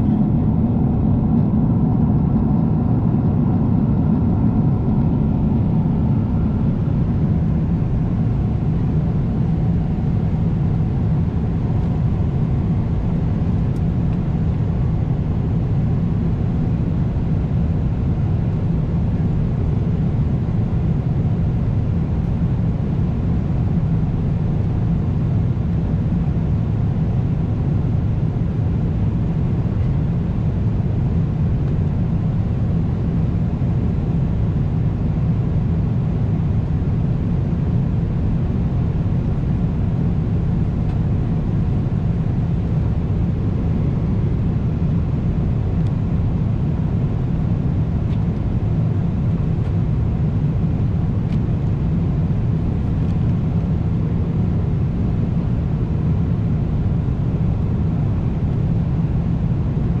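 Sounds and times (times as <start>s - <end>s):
airliner cabin noise: 0.0s - 18.6s.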